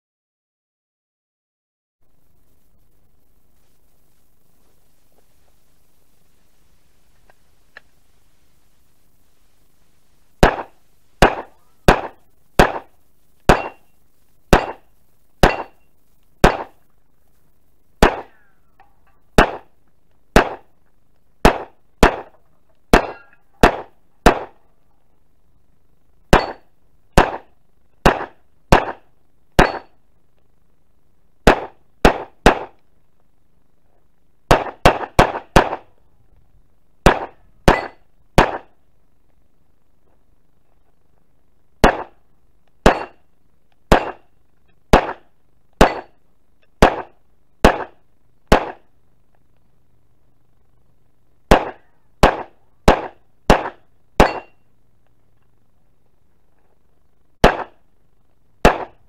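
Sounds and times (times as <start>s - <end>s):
pistol shots: 10.4s - 12.9s, 13.5s - 13.8s, 14.5s - 15.8s, 16.4s - 16.8s, 18.0s - 18.4s, 19.4s - 19.7s, 20.4s - 20.7s, 21.4s - 22.3s, 22.9s - 24.6s, 26.3s - 26.6s, 27.2s - 29.0s, 29.6s - 29.9s, 31.4s - 32.8s, 34.5s - 35.9s, 37.0s - 38.7s, 41.8s - 42.2s, 42.8s - 43.2s, 43.9s - 44.2s, 44.9s - 46.1s, 46.8s - 48.8s, 51.5s - 54.5s, 57.4s - 57.8s, 58.6s - 59.0s.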